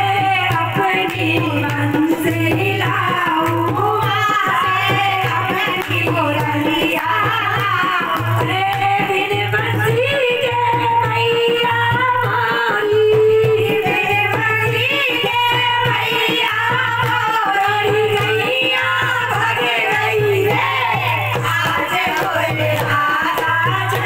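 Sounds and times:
hand drum beat: 0.0 - 24.0
woman singing into a microphone: 0.0 - 24.0
claps: 5.7 - 7.1, 21.0 - 24.0.

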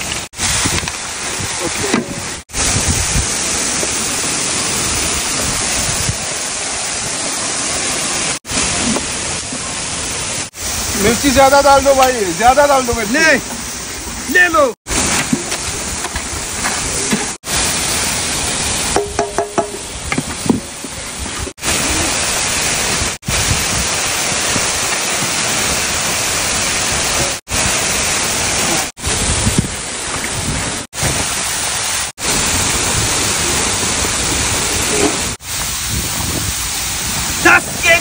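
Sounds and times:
waterfall rushing: 0.0 - 38.0.

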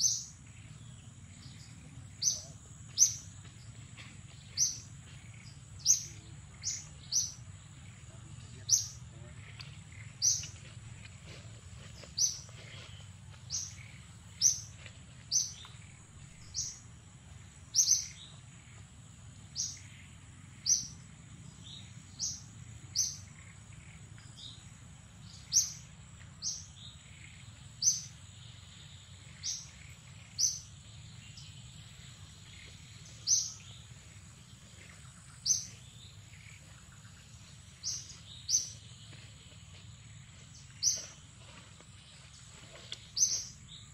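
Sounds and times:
bird chirping: 0.0 - 43.9.

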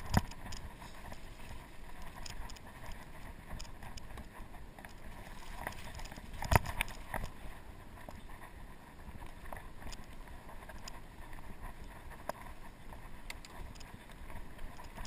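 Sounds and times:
bike clicks and knocks: 0.0 - 1.2, 1.9 - 7.4.

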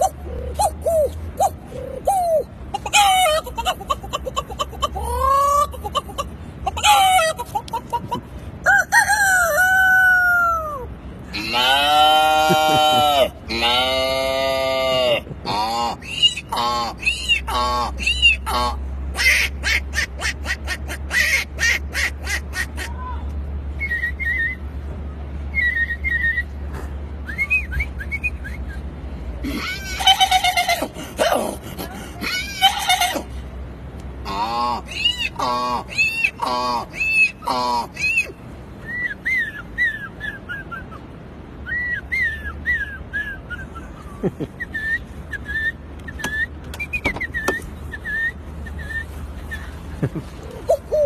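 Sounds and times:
man imitating bird calls: 0.0 - 7.9, 8.7 - 21.4, 41.7 - 51.0
man whistling bird call: 23.7 - 24.7, 25.5 - 26.6, 27.2 - 28.9, 38.1 - 40.9, 41.6 - 44.0, 44.6 - 49.8.

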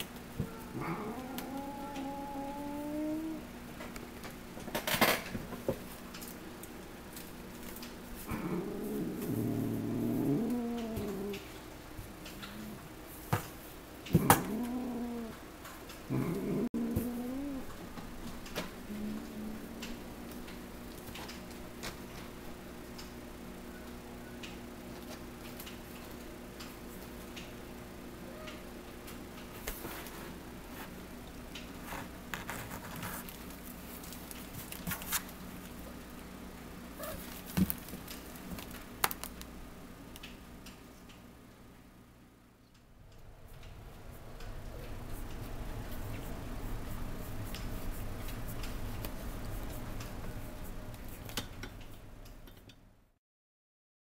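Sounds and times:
faint steady hum: 0.0 - 53.2
cat growling: 0.4 - 3.5, 8.3 - 11.5, 12.3 - 12.9, 14.1 - 15.4, 16.1 - 17.7, 18.8 - 20.0.

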